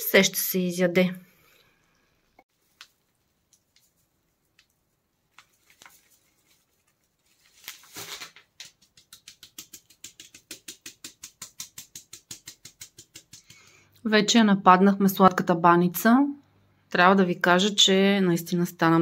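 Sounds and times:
sugar pouring rustle: 0:02.5 - 0:13.7
metal sieve tapping: 0:08.9 - 0:13.7.

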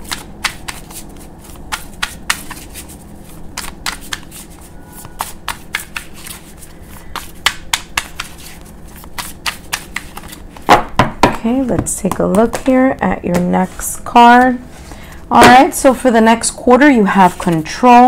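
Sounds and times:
cards being shuffled: 0:00.0 - 0:10.7.

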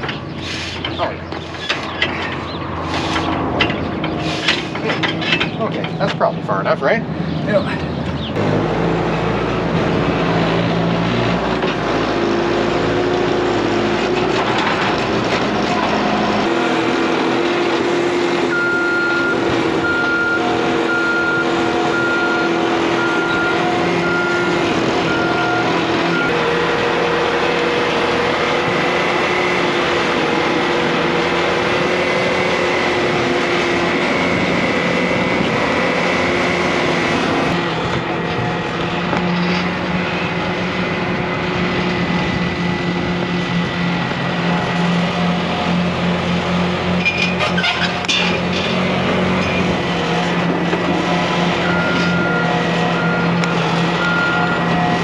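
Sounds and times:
diesel engine running: 0:00.0 - 0:55.0
backup alarm beeping: 0:18.5 - 0:26.4.

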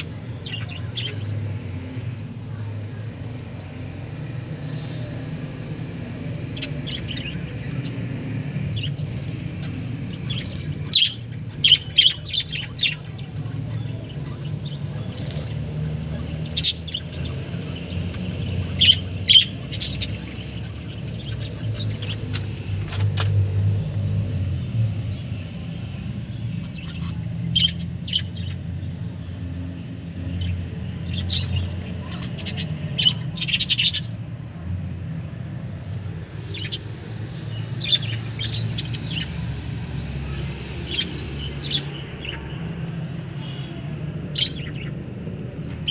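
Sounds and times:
budgerigars chirping: 0:00.0 - 0:01.6, 0:06.2 - 0:08.1, 0:08.7 - 0:23.2, 0:25.1 - 0:28.6, 0:30.2 - 0:34.1, 0:36.3 - 0:42.6.

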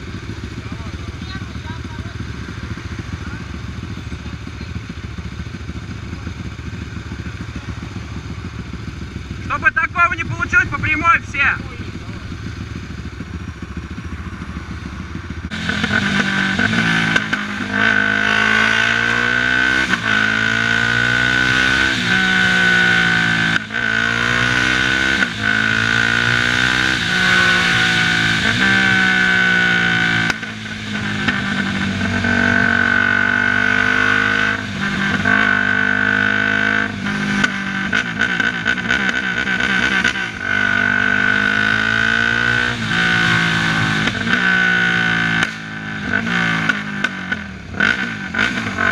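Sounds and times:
quad engine accelerating: 0:00.0 - 0:48.9
steady high whine: 0:09.2 - 0:16.6.

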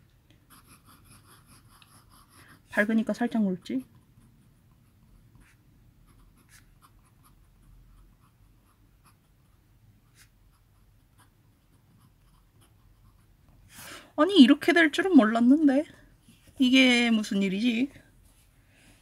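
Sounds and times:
pen nib scratching on paper: 0:00.5 - 0:13.6.

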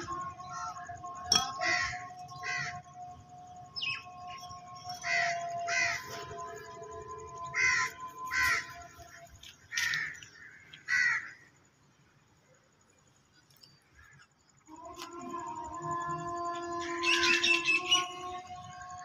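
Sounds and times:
crow cawing: 0:01.5 - 0:03.0, 0:05.0 - 0:06.3, 0:07.5 - 0:09.1, 0:09.7 - 0:11.5.

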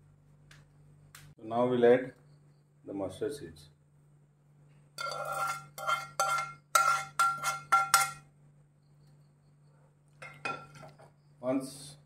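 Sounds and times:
spoon knocking metal pan: 0:05.0 - 0:08.3.

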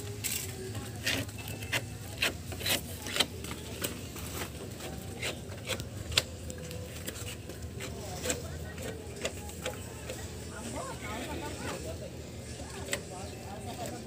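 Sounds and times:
putty knives scraping: 0:01.0 - 0:03.9, 0:04.9 - 0:06.3.

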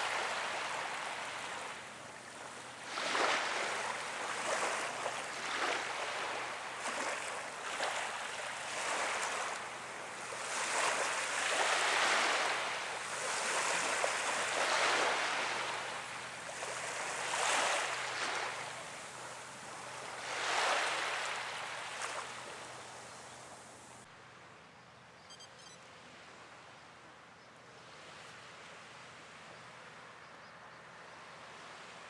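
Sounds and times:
small waves washing on shore: 0:00.0 - 0:24.0
faint short high chirps: 0:25.2 - 0:25.9.

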